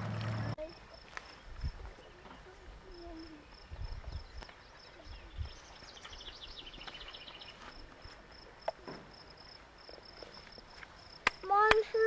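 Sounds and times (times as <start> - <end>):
bird chirping: 1.2 - 7.7.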